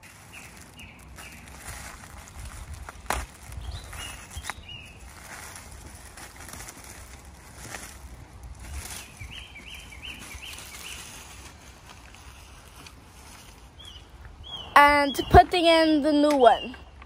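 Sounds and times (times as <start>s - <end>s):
low steady rumble: 0.0s - 14.9s
bird chirping: 0.3s - 1.6s, 3.5s - 5.1s, 8.6s - 11.4s, 13.4s - 17.0s.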